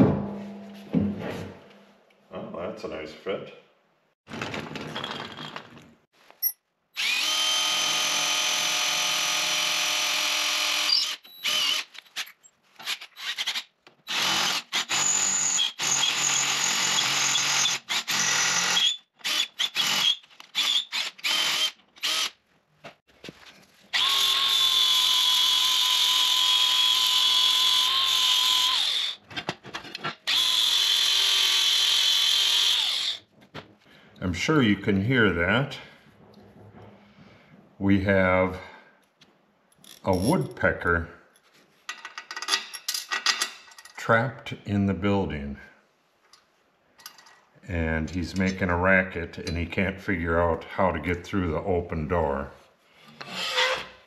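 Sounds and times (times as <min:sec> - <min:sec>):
cordless drill boring steel: 0:07.0 - 0:11.9, 0:12.8 - 0:22.4, 0:23.9 - 0:29.2, 0:30.3 - 0:33.2, 0:53.2 - 0:53.9.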